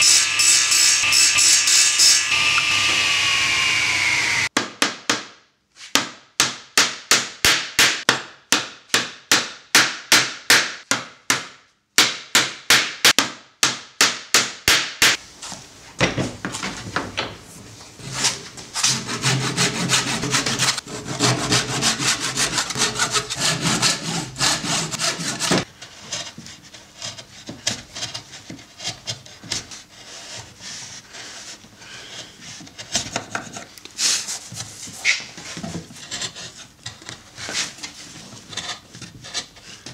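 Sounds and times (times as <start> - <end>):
hand saw rasping through wood: 18.8 - 33.1.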